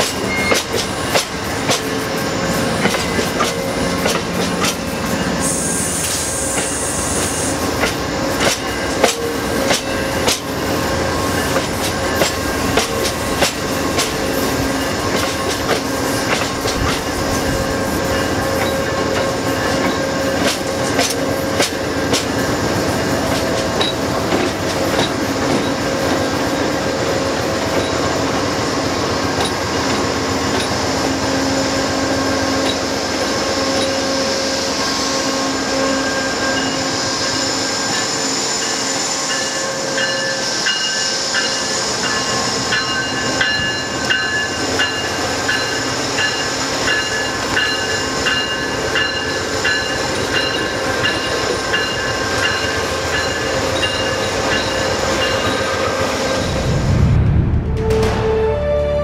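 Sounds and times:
train rolling on rails: 0:00.0 - 0:59.0
music: 0:57.4 - 0:59.0.

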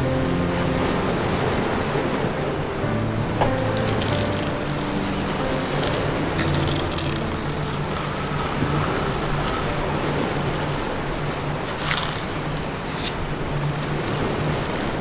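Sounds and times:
soft background music: 0:00.0 - 0:15.0
masking tape tearing rasp: 0:03.8 - 0:09.9, 0:11.8 - 0:15.0.

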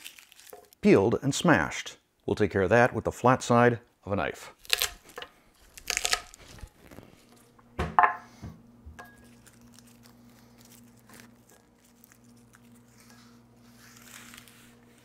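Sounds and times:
garlic skins rustling: 0:00.0 - 0:00.8, 0:04.6 - 0:07.6, 0:09.2 - 0:15.0
glass bowl knocking on wood: 0:07.8 - 0:08.2.

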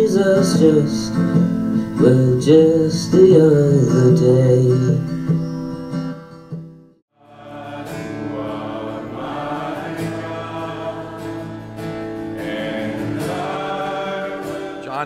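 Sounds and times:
man singing: 0:00.0 - 0:01.2, 0:02.0 - 0:05.1, 0:12.4 - 0:15.0
acoustic guitar strumming: 0:00.0 - 0:15.0
guitar song: 0:00.0 - 0:15.0.

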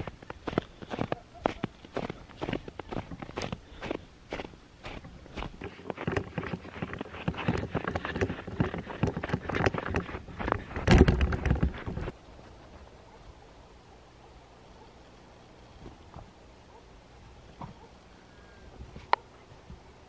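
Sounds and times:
footsteps crunching through snow: 0:00.0 - 0:10.8
camera handling rustles and knocks: 0:05.4 - 0:12.1.

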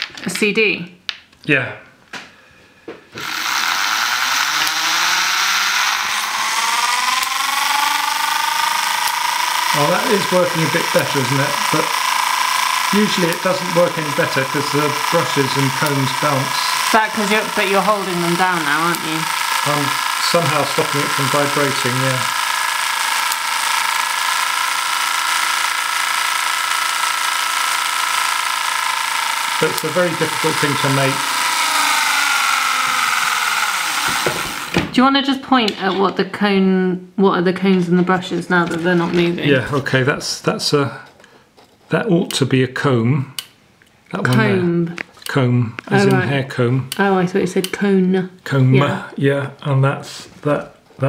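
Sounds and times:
small electric motor whirring: 0:03.2 - 0:34.8, 0:44.2 - 0:45.2, 0:45.8 - 0:46.3
wire brushes rattling on disc: 0:06.8 - 0:34.7.

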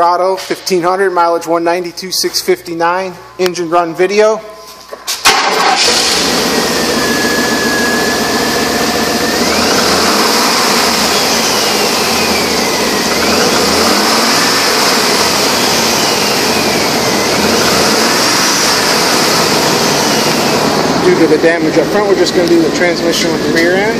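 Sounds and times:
engine idling: 0:05.2 - 0:23.9.

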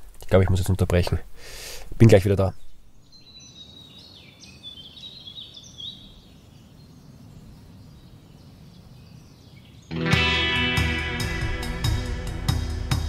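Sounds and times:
birds twittering: 0:02.1 - 0:10.9.

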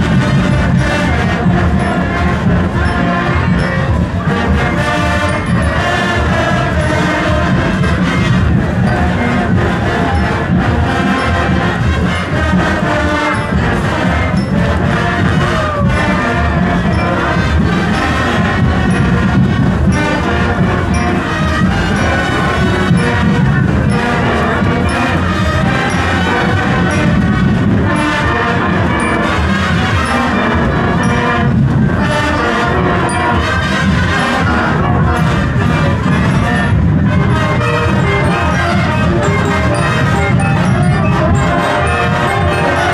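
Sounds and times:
marching band playing: 0:00.0 - 0:42.9.

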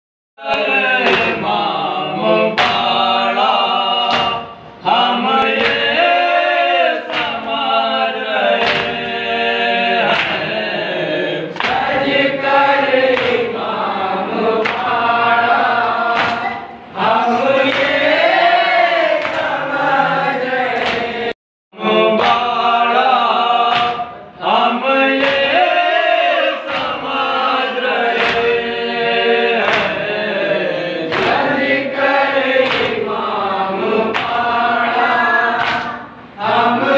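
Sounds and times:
men chanting a lament: 0:00.4 - 0:36.9
hands slapping chests: 0:08.6 - 0:09.0, 0:14.6 - 0:14.9, 0:16.1 - 0:16.5, 0:35.6 - 0:36.0.

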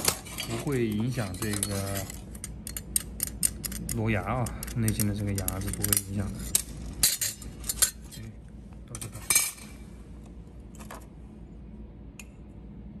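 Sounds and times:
steel plates clinking: 0:00.0 - 0:04.0
low steady hum: 0:00.0 - 0:13.0.

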